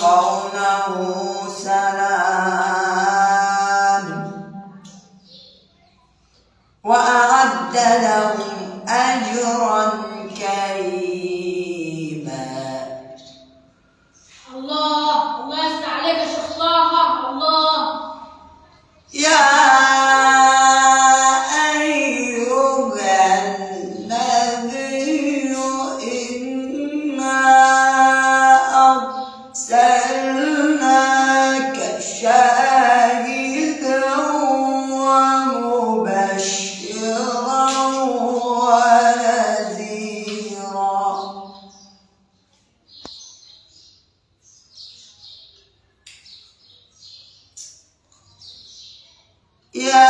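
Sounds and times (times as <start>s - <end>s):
man reciting melodically: 0.0s - 5.6s, 6.7s - 14.2s, 14.9s - 18.4s, 19.0s - 42.2s, 49.7s - 50.0s
faint bird chirping: 0.0s - 35.6s, 36.2s - 50.0s.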